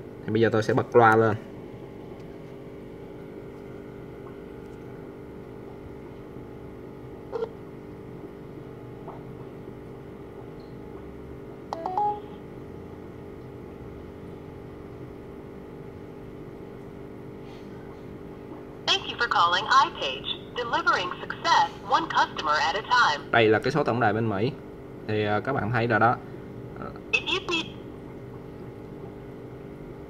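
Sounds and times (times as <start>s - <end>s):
phone line tone: 7.3s - 7.6s, 11.7s - 12.5s
burst of phone tones: 11.7s - 12.4s.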